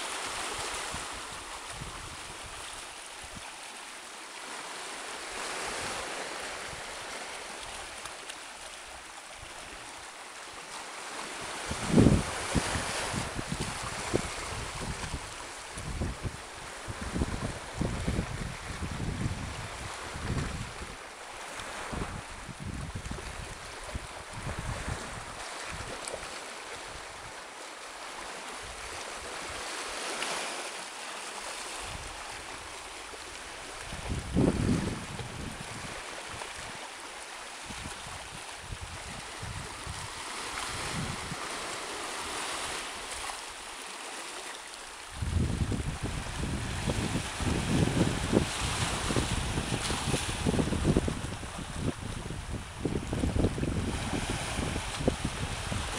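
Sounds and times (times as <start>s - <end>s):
small waves lapping on rocks: 0.0s - 55.9s
wind rumble on microphone: 0.6s - 2.7s, 11.6s - 21.0s, 21.8s - 26.1s, 33.8s - 36.8s, 37.7s - 41.5s, 45.1s - 55.9s.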